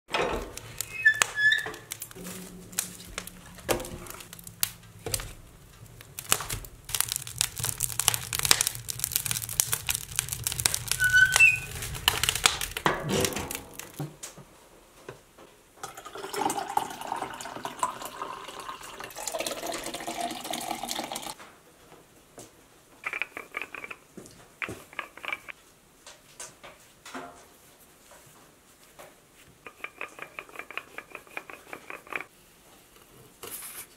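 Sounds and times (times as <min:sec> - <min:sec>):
fire crackling in stove: 0:00.1 - 0:17.8, 0:23.0 - 0:28.2.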